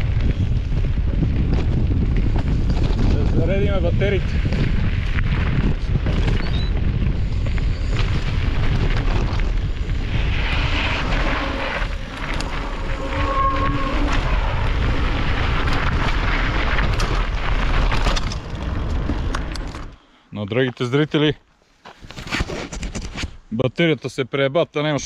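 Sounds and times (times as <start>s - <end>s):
wind rumbling on microphone: 0.0s - 20.0s
bike rattling clicks and knocks: 15.9s - 20.0s.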